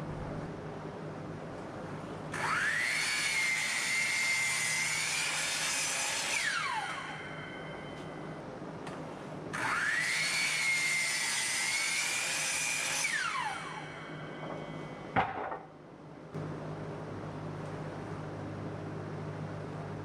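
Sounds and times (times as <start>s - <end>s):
miter saw cutting wood: 2.4s - 7.6s, 9.5s - 14.8s.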